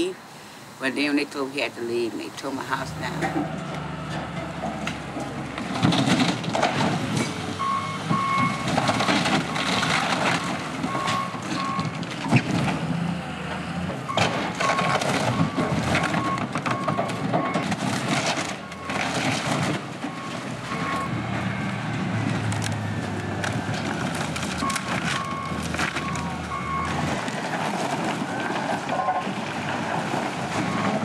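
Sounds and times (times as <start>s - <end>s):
diesel engine running: 2.2s - 31.0s
wood cracking and crashing: 4.6s - 31.0s
reversing alarm beeps: 7.6s - 9.2s, 10.9s - 11.9s, 20.1s - 21.2s.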